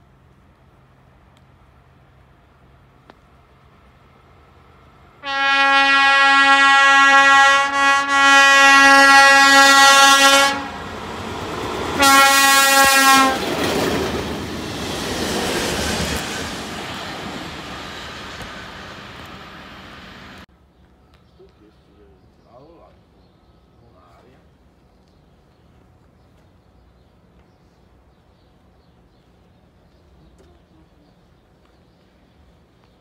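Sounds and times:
locomotive horn blast: 5.2 - 11.1, 11.9 - 13.6
train wheels on rails: 10.8 - 20.5.

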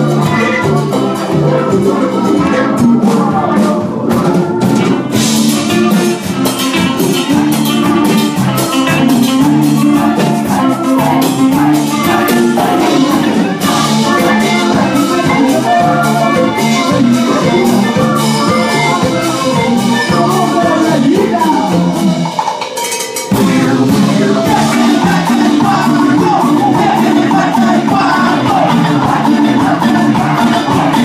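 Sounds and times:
drum kit: 0.0 - 31.0
electric guitar: 0.0 - 31.0
live band playing: 0.0 - 31.0.

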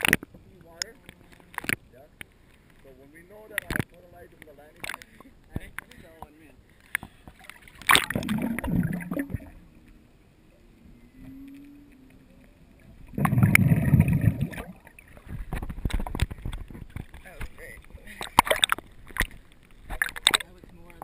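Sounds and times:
deep churning water: 6.7 - 21.0
water splashing: 7.2 - 10.0, 10.8 - 21.0.

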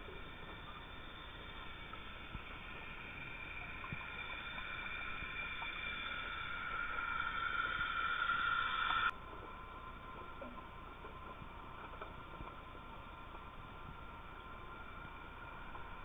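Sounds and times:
boat motor whine underwater: 0.0 - 9.1.

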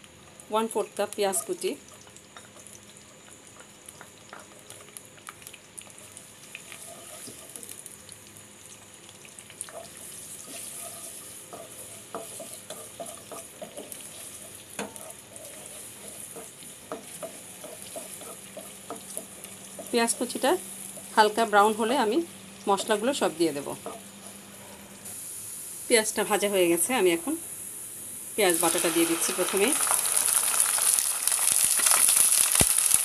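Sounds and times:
onion sizzling in oil: 0.0 - 33.0
wooden spatula scraping pot: 10.5 - 20.0.

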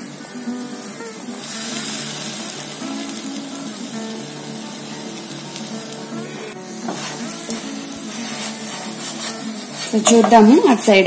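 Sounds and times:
bread frying in oil: 0.0 - 10.9
background music: 0.0 - 11.0
spatula scraping a pan: 6.7 - 10.6.

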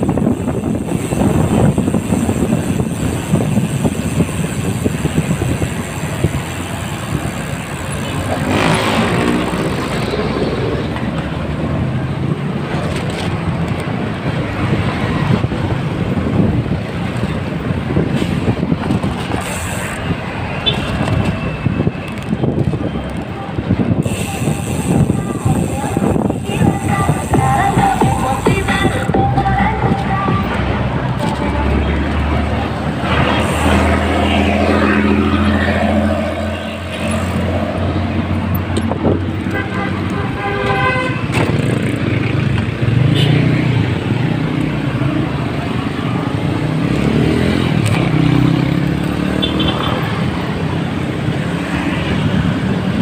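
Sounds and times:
road traffic rumble: 0.0 - 53.0
vehicle engine: 0.0 - 53.0.

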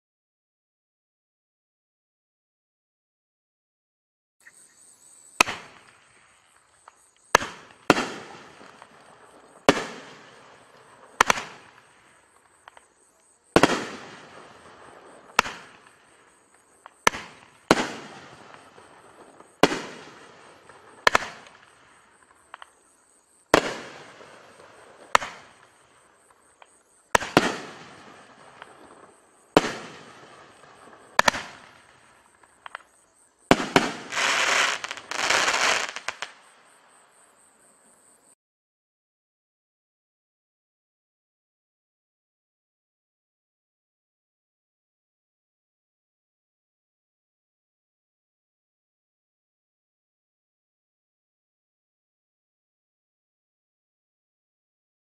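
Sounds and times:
dense burst of firework noise: 5.3 - 36.6
firework cake bangs: 5.4 - 6.2, 7.3 - 12.0, 13.5 - 21.8, 23.5 - 25.9, 27.1 - 32.9, 33.5 - 36.3.

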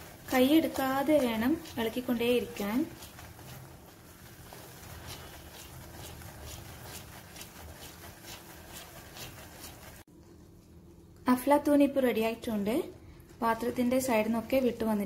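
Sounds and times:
spatula scraping thick mixture in pan: 0.0 - 10.1.

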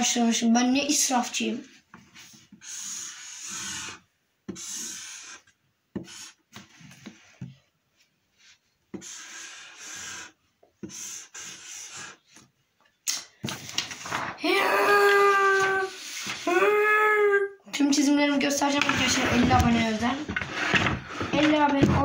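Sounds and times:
marker rubbing on paper: 2.2 - 7.5, 8.4 - 12.5.

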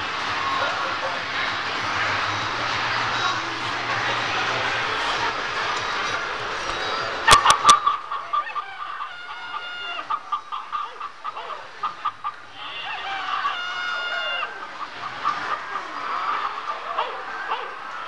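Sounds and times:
hens clucking: 0.4 - 18.0
rooster crowing: 6.9 - 11.7, 12.5 - 18.0.

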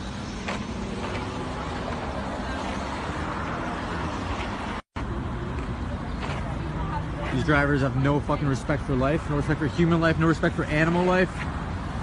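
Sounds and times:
road noise hiss: 0.0 - 12.0.

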